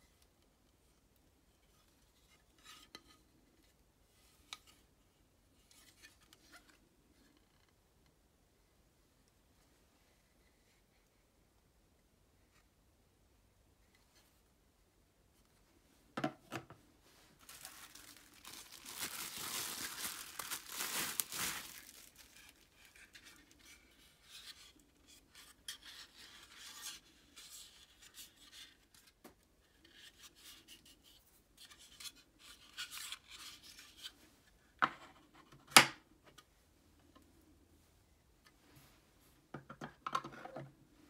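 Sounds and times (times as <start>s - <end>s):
plastic packaging crinkling: 17.4s - 23.5s.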